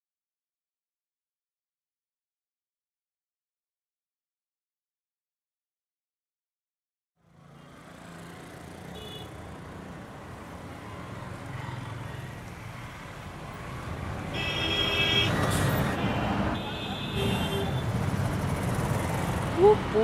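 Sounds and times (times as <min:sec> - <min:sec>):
traffic hum: 0:07.2 - 0:20.0
vehicle horn: 0:09.0 - 0:09.3, 0:14.3 - 0:17.9
crowd noise: 0:15.4 - 0:20.0.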